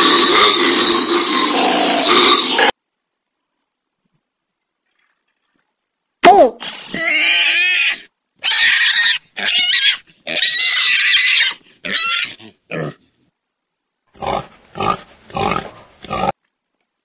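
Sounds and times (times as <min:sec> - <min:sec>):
pig grunting: 0:00.0 - 0:02.8, 0:11.8 - 0:13.1, 0:14.1 - 0:16.4
pig squealing: 0:00.0 - 0:02.8, 0:07.0 - 0:13.0.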